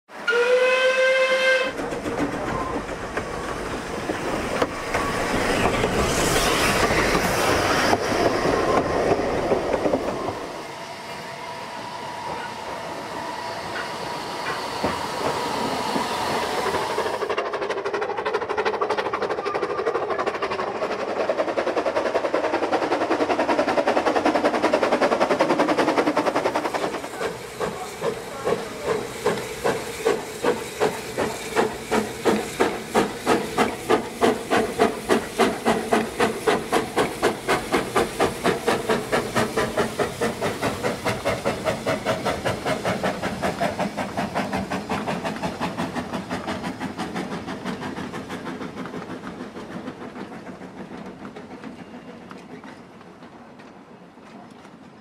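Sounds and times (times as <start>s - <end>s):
steam and rail noise: 0.1s - 55.0s
steam whistle blast: 0.2s - 1.8s
steam engine exhaust beats: 0.3s - 52.4s.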